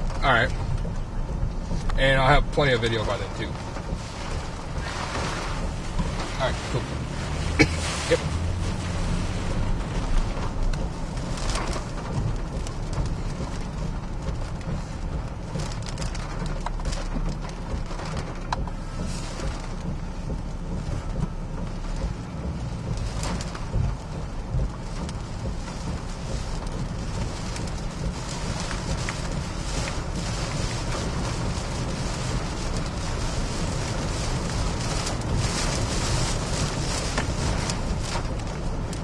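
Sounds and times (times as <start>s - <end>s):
hurricane wind and heavy rain: 0.0s - 39.0s
low rumble: 0.0s - 39.0s.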